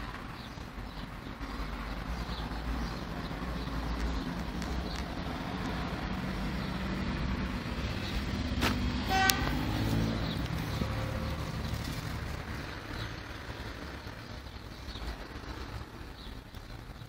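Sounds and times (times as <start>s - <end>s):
traffic rumble: 0.0s - 17.0s
car horn toot: 9.1s - 9.7s.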